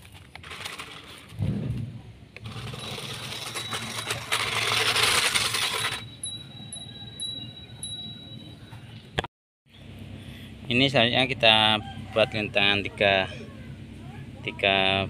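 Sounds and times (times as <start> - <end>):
small electric motor running: 2.4 - 6.4
high-pitched tone: 2.5 - 9.0.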